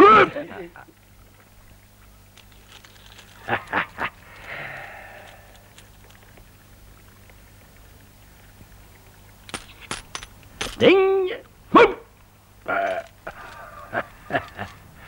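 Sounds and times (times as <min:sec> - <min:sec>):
coins clinking: 0:02.4 - 0:03.7, 0:09.5 - 0:10.9
soft breathy sound: 0:04.3 - 0:05.8
small clicks: 0:12.8 - 0:14.8.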